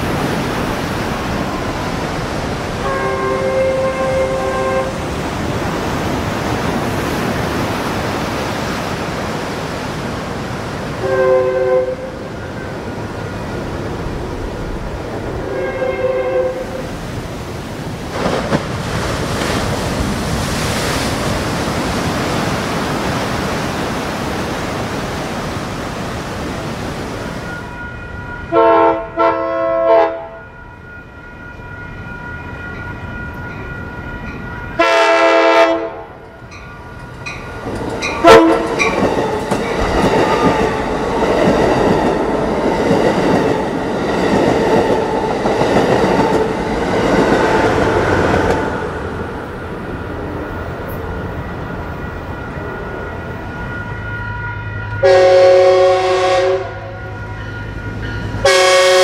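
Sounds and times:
locomotive air horn blasts: 2.8 - 5.0, 11.0 - 12.3, 15.4 - 16.9, 27.6 - 30.8, 34.8 - 36.2, 38.2 - 38.7, 54.0 - 59.0
train wheels clattering on rails: 36.3 - 49.0.

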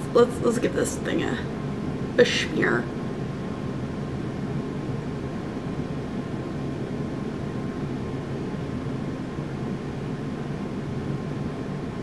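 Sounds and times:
faint steady whine: 0.0 - 12.0
low room hum and hiss: 0.0 - 12.0.

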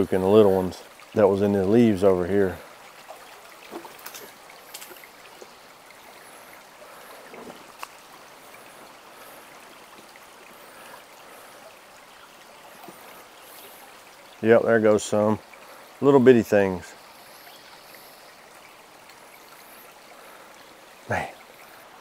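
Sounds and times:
brook trickling over stones: 0.0 - 22.0
faint sharp clicks: 7.8 - 8.0.

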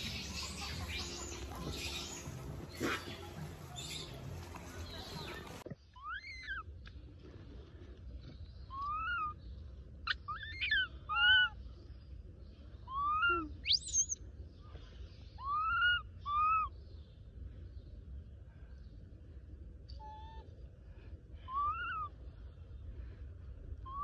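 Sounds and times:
sharp monkey squeak: 10.3 - 11.5, 13.0 - 14.2
infant monkey cooing: 21.5 - 22.1.

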